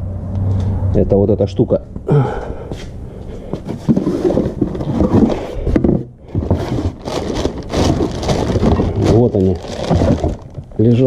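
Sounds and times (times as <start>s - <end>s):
rustling handling noise: 3.3s - 11.0s
plastic bag crinkling: 6.4s - 11.0s.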